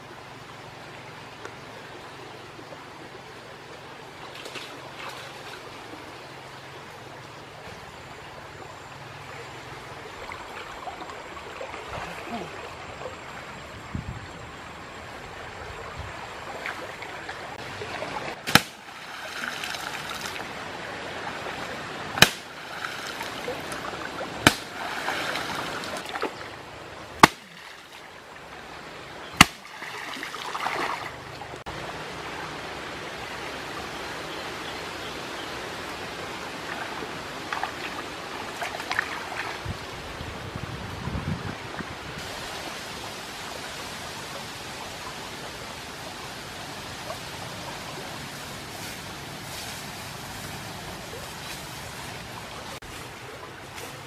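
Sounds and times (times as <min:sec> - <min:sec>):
running stream water: 0:00.0 - 0:54.0
spear smacking into water: 0:18.5 - 0:18.8, 0:22.2 - 0:22.5, 0:24.4 - 0:26.3, 0:27.2 - 0:27.7, 0:29.4 - 0:29.7.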